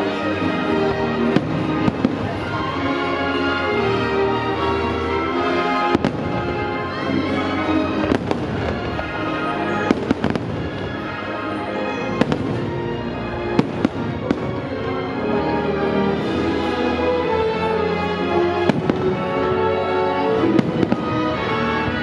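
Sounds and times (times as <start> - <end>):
fireworks bursting with sharp bangs: 0.0 - 4.6, 5.5 - 15.1, 18.6 - 19.7, 20.3 - 22.0
show music: 0.0 - 22.0.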